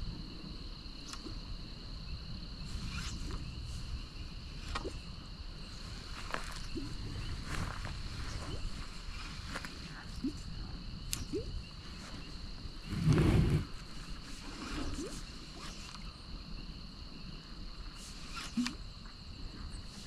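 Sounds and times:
insect chorus trilling: 0.0s - 20.0s.

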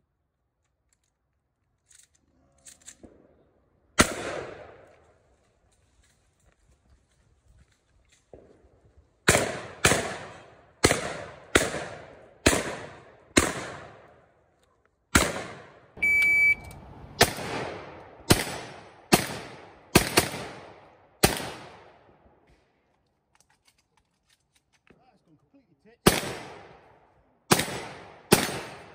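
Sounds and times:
shotgun shots: 4.0s - 4.8s, 9.2s - 14.2s, 15.1s - 16.0s, 17.2s - 22.1s, 26.0s - 26.9s, 27.5s - 28.9s.

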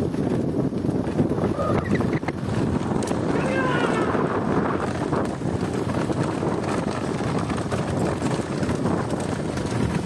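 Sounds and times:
hooves and cart clattering: 0.0s - 10.0s
wind buffeting microphone: 0.0s - 10.0s.

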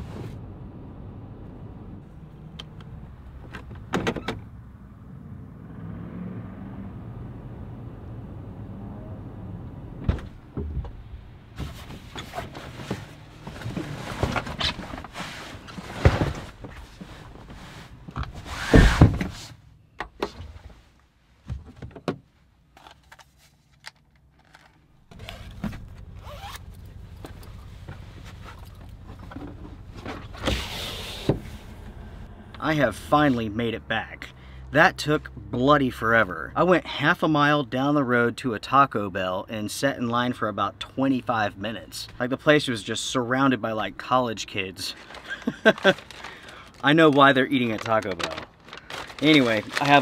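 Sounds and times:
sliding window scraping: 11.6s - 19.6s, 25.1s - 26.7s, 27.7s - 32.0s.

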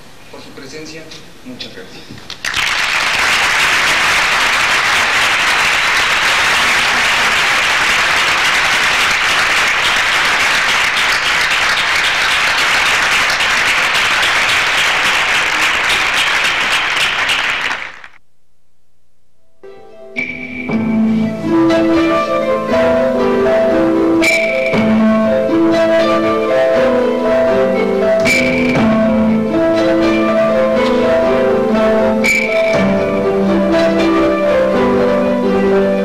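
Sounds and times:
audience applauding: 2.3s - 18.2s.

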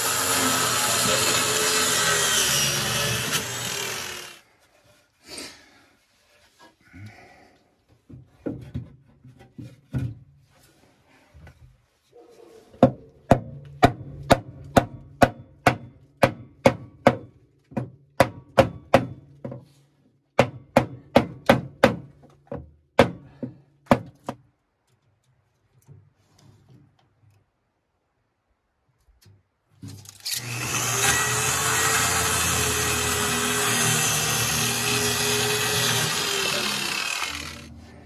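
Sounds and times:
hammer pounding boards: 12.8s - 19.6s, 20.4s - 24.4s.

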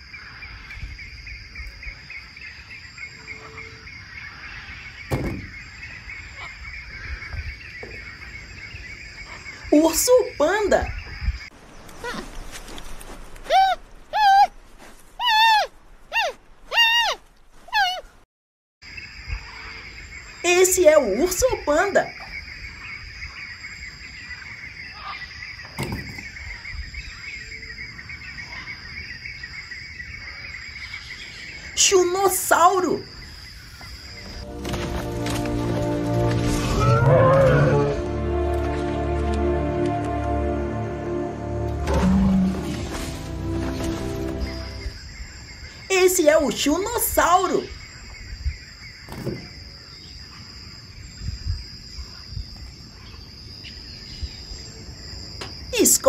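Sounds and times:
birds chirping: 0.0s - 18.2s, 18.8s - 36.2s, 41.7s - 56.0s
sharp knock: 5.1s - 5.5s.

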